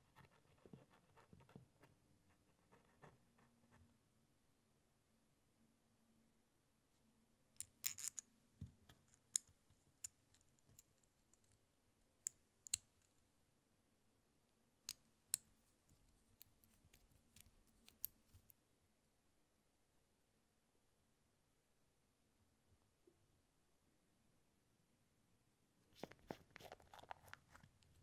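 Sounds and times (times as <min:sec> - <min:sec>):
small model parts clicking: 0:07.6 - 0:08.2.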